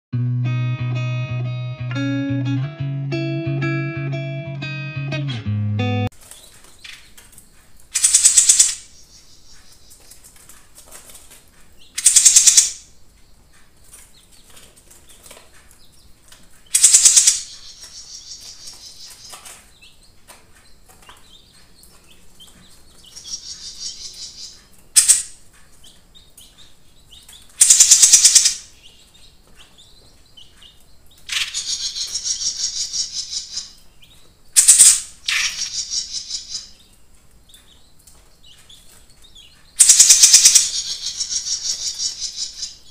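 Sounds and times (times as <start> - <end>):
soft bird twittering: 29.6 - 33.8, 39.4 - 42.9
high-pitched bird trills: 39.8 - 42.8.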